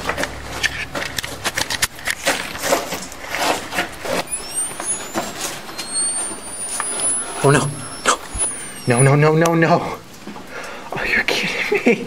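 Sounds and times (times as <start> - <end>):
thin high whine: 4.0 - 10.0.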